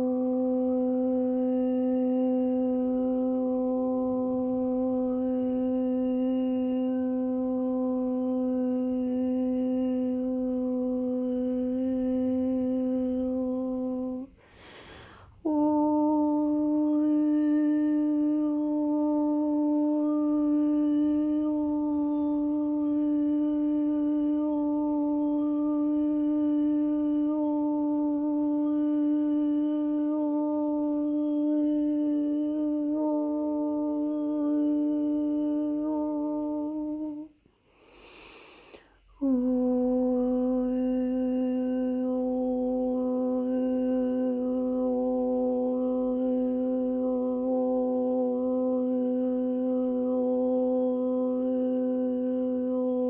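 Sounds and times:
person humming a long note: 0:00.0 - 0:53.0
person breathing: 0:14.3 - 0:15.5, 0:37.4 - 0:39.2.

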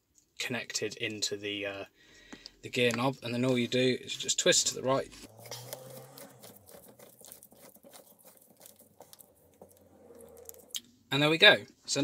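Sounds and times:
gear knob ticking and rubbing: 0:05.0 - 0:09.9.

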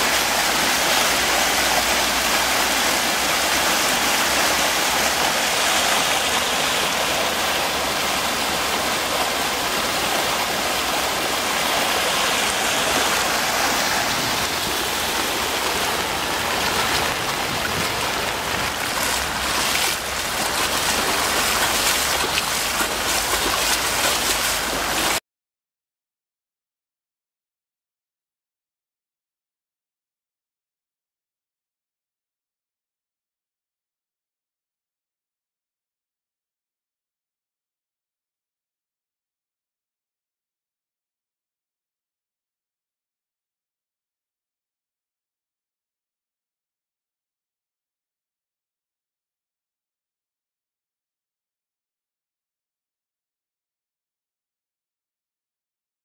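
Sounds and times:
floodwater rushing: 0:00.0 - 0:25.2.

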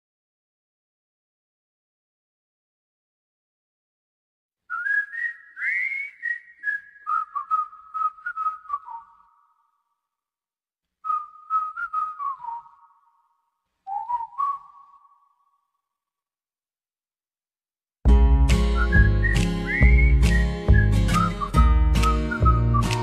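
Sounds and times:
person whistling a tune: 0:04.7 - 0:09.4, 0:11.0 - 0:13.1, 0:13.9 - 0:15.4, 0:18.5 - 0:23.0.

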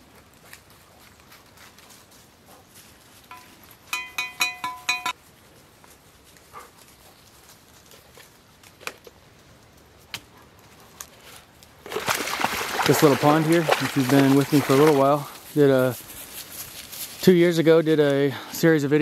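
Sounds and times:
sharp ringing metal clinks: 0:03.3 - 0:05.2.

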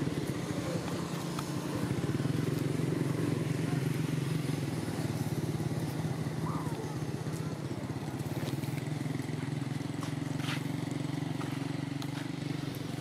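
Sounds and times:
small engine idling: 0:00.0 - 0:13.0.

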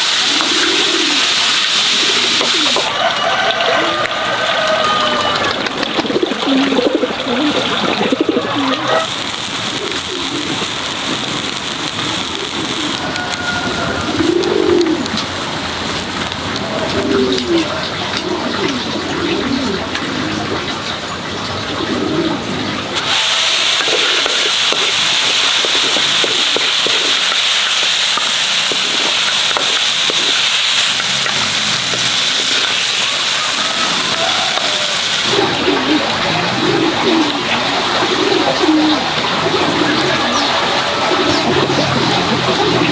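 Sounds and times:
splashing water rushing: 0:00.0 - 0:18.6, 0:22.8 - 0:42.9.

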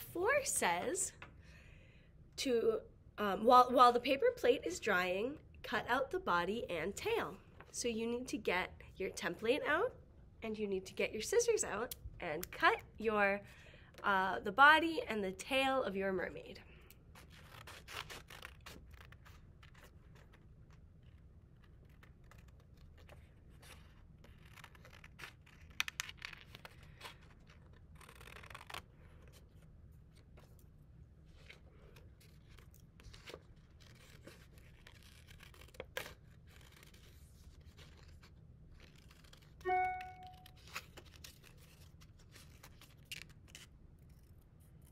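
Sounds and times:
paper sheet rustling: 0:31.2 - 0:44.3
scissors snipping paper: 0:32.4 - 0:38.2, 0:38.8 - 0:44.9.

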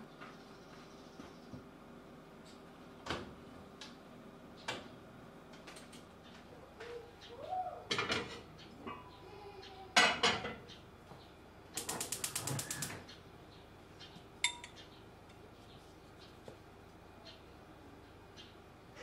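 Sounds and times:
gas igniter clicking: 0:11.8 - 0:13.0
small knocks and clinks: 0:14.4 - 0:14.8.

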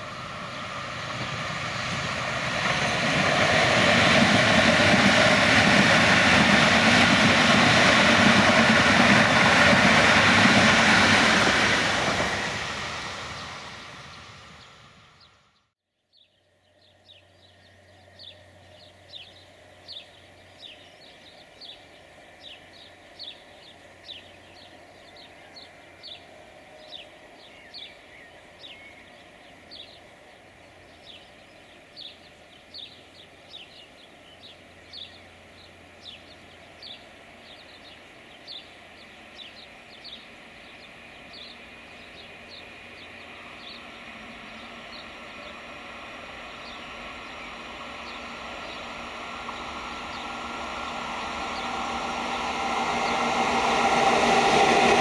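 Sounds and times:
distant freight train rumble: 0:00.0 - 0:55.0
bird chirping: 0:14.1 - 0:51.8.

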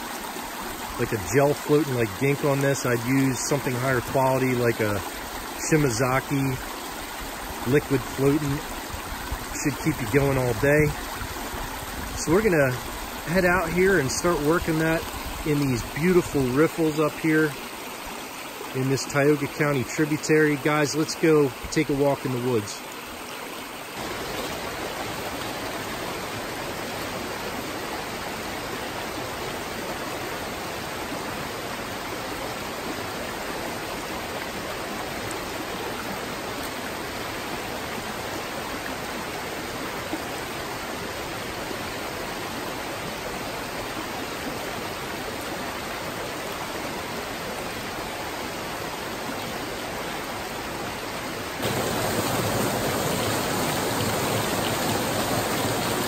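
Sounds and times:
brook rushing over rocks: 0:00.0 - 0:18.1, 0:51.6 - 0:56.0
small waterfall: 0:00.0 - 0:56.0.

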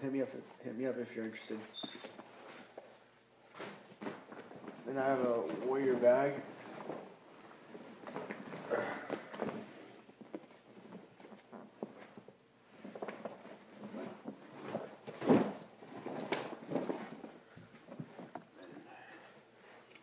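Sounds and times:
fabric bag rustling: 0:03.5 - 0:18.2.

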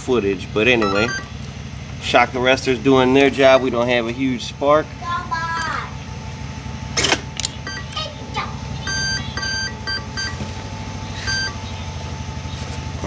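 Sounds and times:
electronic startup beeps: 0:00.8 - 0:01.4, 0:07.6 - 0:08.0, 0:08.8 - 0:10.4, 0:11.2 - 0:11.8.

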